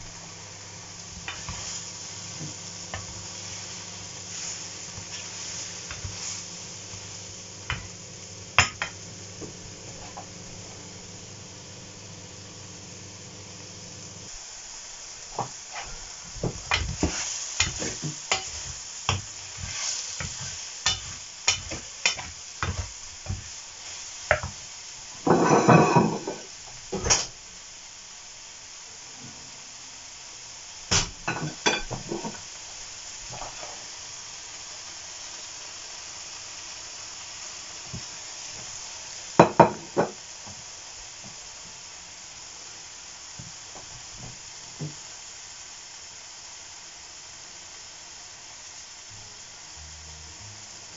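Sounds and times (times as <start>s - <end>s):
mushrooms sizzling in a frying pan: 0.0s - 50.9s
wooden spatula scraping a pan: 1.0s - 7.9s, 15.3s - 24.6s, 25.2s - 26.5s, 31.8s - 32.4s.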